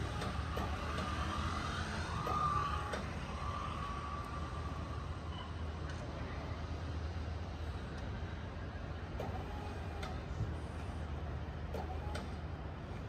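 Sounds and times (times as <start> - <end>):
high wavering whine: 0.0 - 6.0
truck engine rumbling: 0.0 - 13.0.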